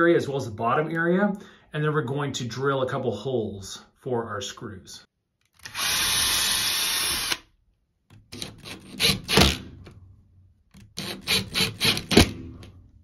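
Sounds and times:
cordless drill boring: 5.6s - 7.5s, 8.4s - 9.6s, 11.0s - 12.3s
impact driver hammering: 11.0s - 12.7s.

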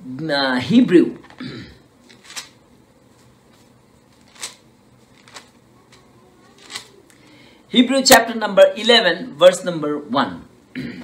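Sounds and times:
pages rustling: 2.0s - 7.0s.

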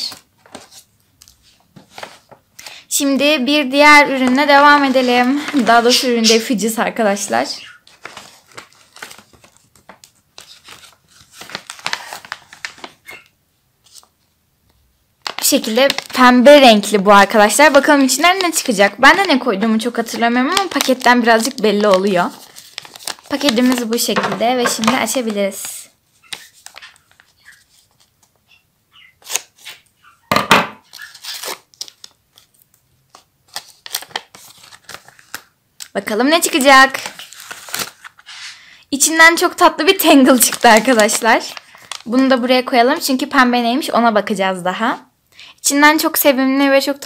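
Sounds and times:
paper packet crinkling: 3.7s - 14.2s, 15.2s - 30.2s, 30.8s - 38.6s, 39.4s - 43.1s
paper tearing: 7.7s - 13.2s, 29.2s - 29.9s, 30.8s - 32.1s.

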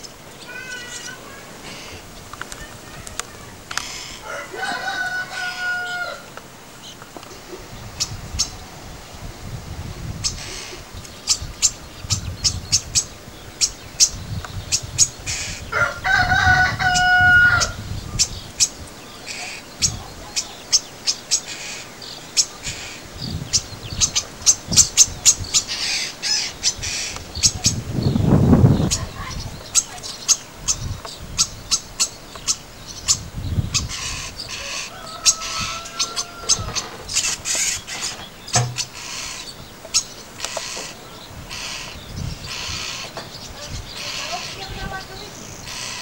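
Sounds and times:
starlings chirping and clicking: 0.0s - 8.6s, 10.1s - 46.0s
rooster crowing: 4.0s - 6.4s, 15.7s - 17.8s, 34.5s - 37.1s.

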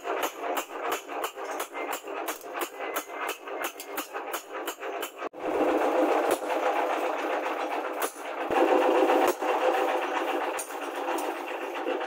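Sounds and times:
hammer striking blade on anvil: 0.0s - 5.3s, 7.9s - 11.5s.

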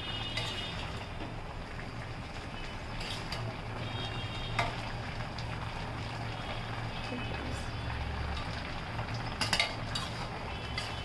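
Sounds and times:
metal spatula scraping a pot: 2.9s - 3.4s, 9.4s - 11.0s.

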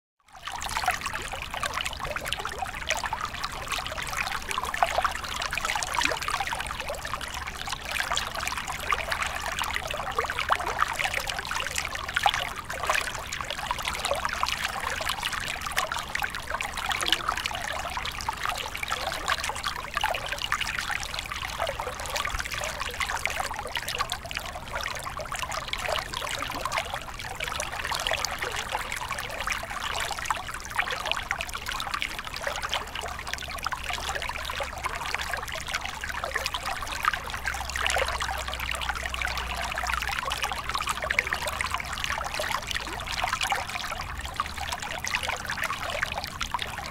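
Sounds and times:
water trickling and splashing: 0.3s - 46.9s.

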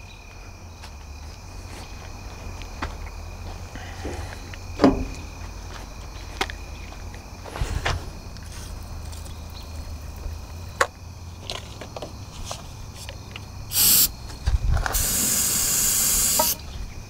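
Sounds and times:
spray bottle hissing: 13.7s - 14.1s, 14.9s - 16.6s.

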